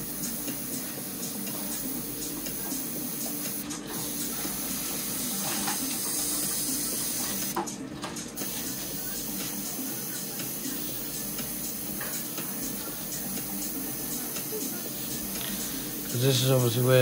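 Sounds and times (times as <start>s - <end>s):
airbrush spraying hiss: 0.0s - 7.6s, 8.4s - 16.8s.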